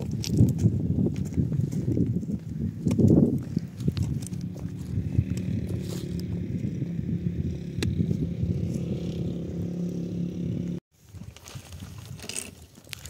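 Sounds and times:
vehicle engine idling: 0:03.4 - 0:10.8.

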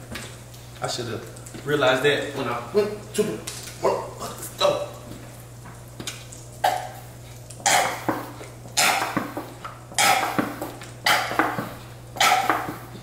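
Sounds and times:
utensils and dishes clattering: 0:07.7 - 0:13.0.

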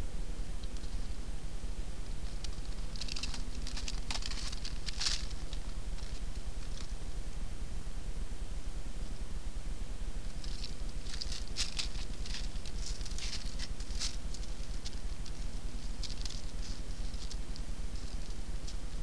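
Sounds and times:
steady low hum: 0:00.0 - 0:19.0
animal scratching: 0:02.1 - 0:07.0, 0:10.2 - 0:19.0.

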